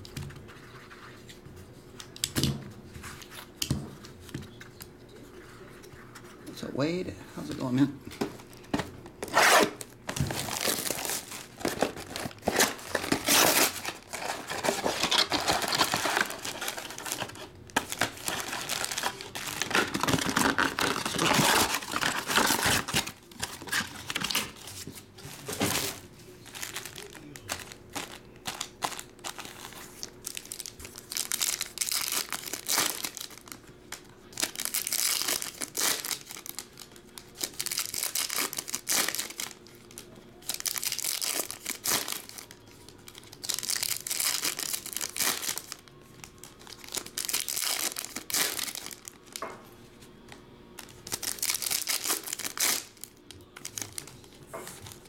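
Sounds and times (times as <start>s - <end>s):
foil packs crinkling: 8.4s - 49.4s, 50.8s - 55.0s
foil pack tearing open: 9.2s - 24.6s, 25.6s - 33.6s, 34.3s - 45.8s, 46.4s - 49.4s, 51.0s - 54.1s.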